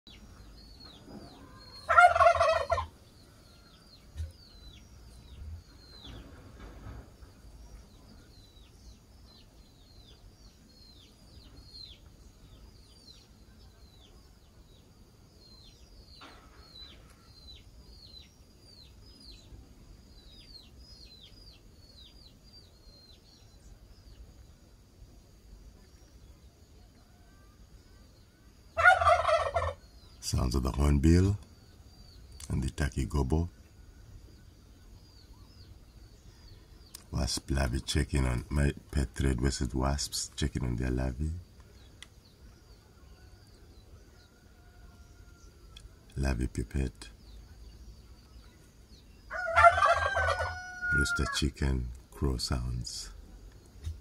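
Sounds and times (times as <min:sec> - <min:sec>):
small birds chirping: 0:00.1 - 0:54.0
turkey gobbling: 0:01.3 - 0:03.0, 0:28.8 - 0:29.8, 0:49.3 - 0:51.1.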